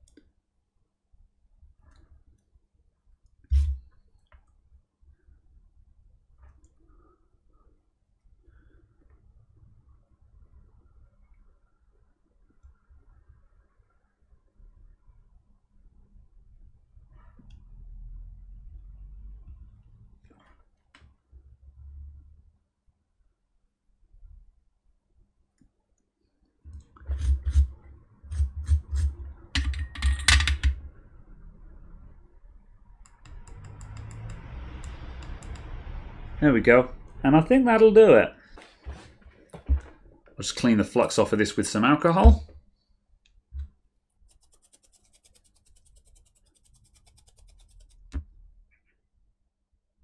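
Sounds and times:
scrubbing on circuit board: 27.0s - 29.2s, 44.2s - 48.2s.

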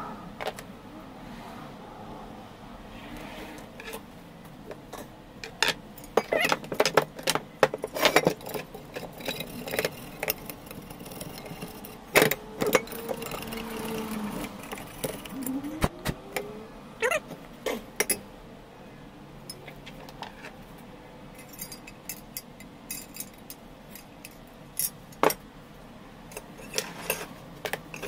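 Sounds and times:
metal parts clinking and rattling: 5.4s - 15.5s, 21.3s - 25.4s, 26.3s - 28.0s.

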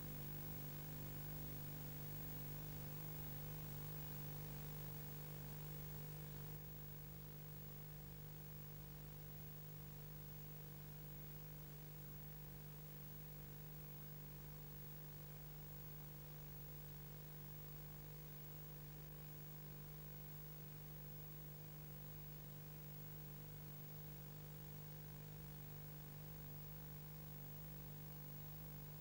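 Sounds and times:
low electrical hum: 0.0s - 6.6s.

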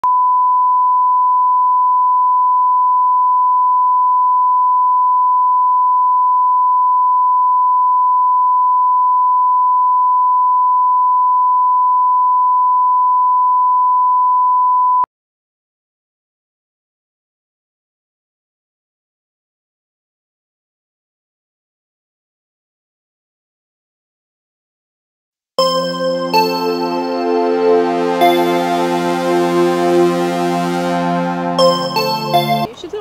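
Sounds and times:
steady test tone beep: 0.0s - 15.0s.

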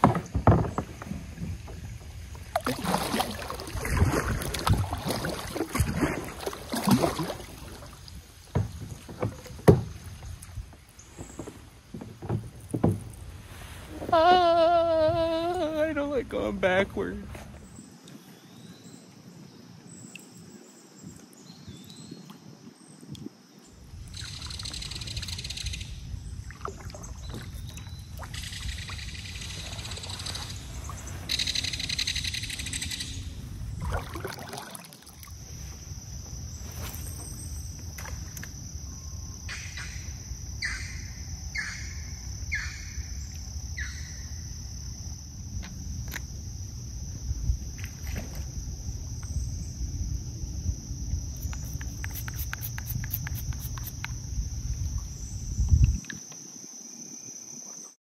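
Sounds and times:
insects buzzing: 0.0s - 18.6s, 23.4s - 58.0s
high insect trill: 11.3s - 17.9s, 22.7s - 58.0s
kayak paddle strokes swishing: 51.4s - 54.1s.

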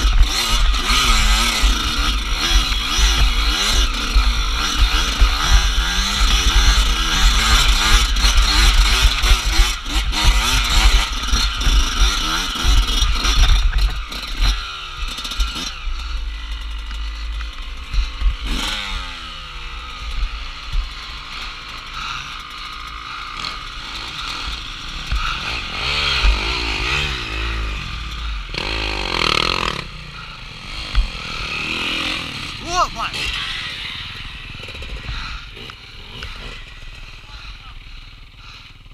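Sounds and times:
dirt bike engine revving: 0.0s - 38.9s
other dirt bike engines: 0.0s - 38.9s.

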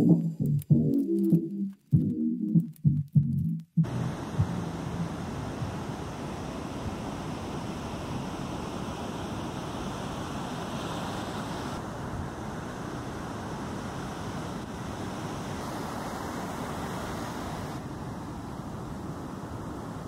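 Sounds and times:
heavy surf breaking: 3.8s - 20.0s.

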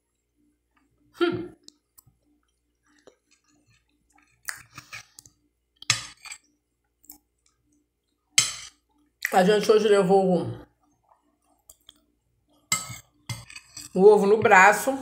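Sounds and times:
chewing and mouth sounds: 1.6s - 5.9s, 10.8s - 13.3s
metal spoon scraping glass plate: 5.9s - 6.5s, 8.4s - 8.7s, 12.7s - 14.1s.

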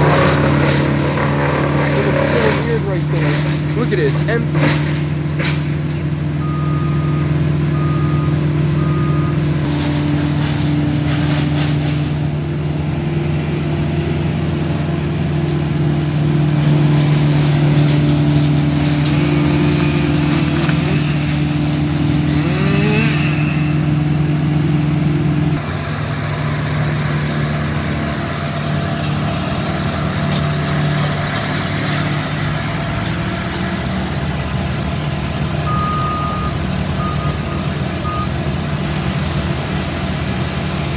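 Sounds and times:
large engine running: 0.0s - 40.9s
reversing beeps: 6.4s - 9.4s, 35.7s - 38.3s.

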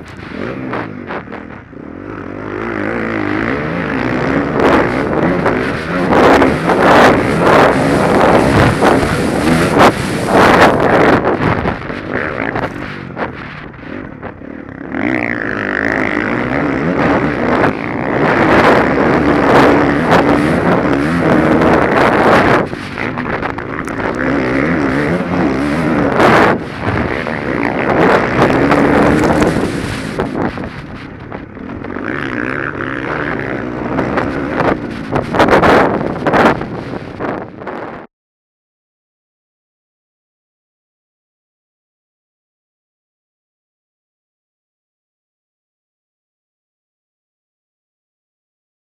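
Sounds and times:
motocross bike engine revving: 0.0s - 37.4s
wind buffeting microphone: 0.0s - 38.1s.

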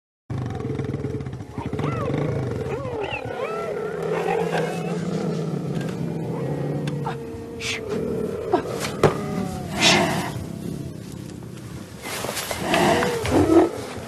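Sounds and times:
cheetahs chirping: 1.4s - 7.9s.

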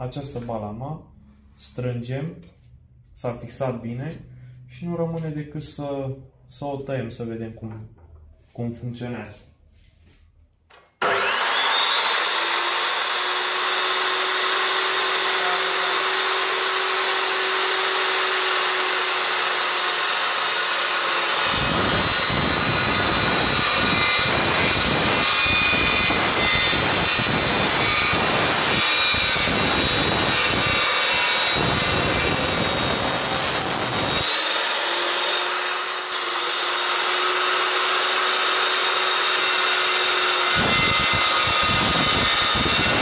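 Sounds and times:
chop saw whining: 11.0s - 43.0s
saw rasping through steel pipe: 11.0s - 43.0s.

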